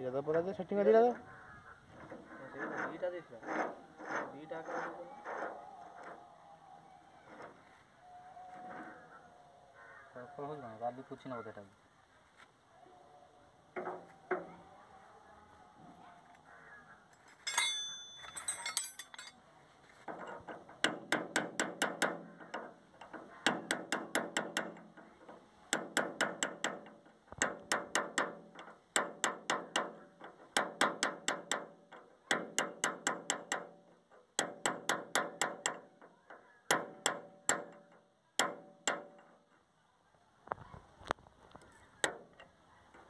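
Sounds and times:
metal tool ringing clink: 17.4 - 19.4.

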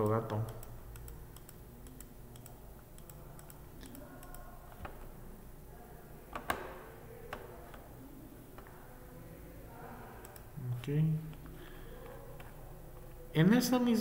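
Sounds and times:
keyboard and mouse clicks: 0.0 - 5.1
low steady hum: 0.0 - 14.0.

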